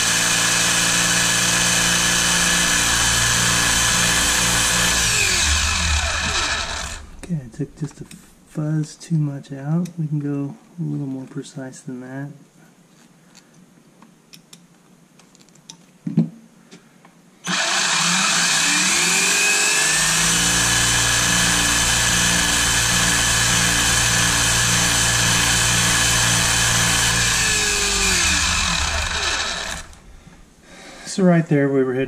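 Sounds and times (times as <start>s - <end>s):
rc car motor whine: 0.0s - 7.3s, 17.4s - 30.5s.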